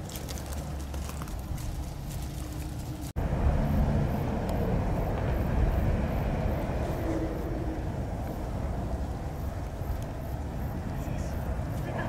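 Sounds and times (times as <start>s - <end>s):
light ticks and rustles: 0.0s - 3.2s
low rumble of traffic: 0.0s - 12.0s.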